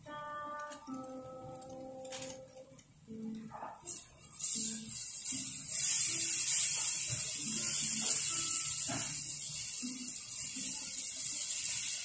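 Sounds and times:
steak sizzling on hot plate: 3.8s - 12.0s.

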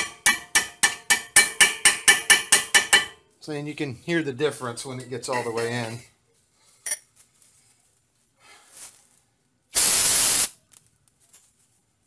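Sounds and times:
metallic clink of hand tool: 4.9s - 6.1s
short burst of hiss: 9.7s - 10.6s.

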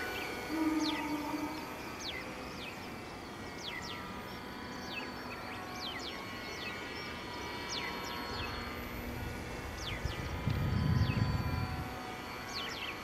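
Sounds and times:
birds whistling with falling pitch: 0.0s - 3.0s
faint steady whine: 0.0s - 13.0s.

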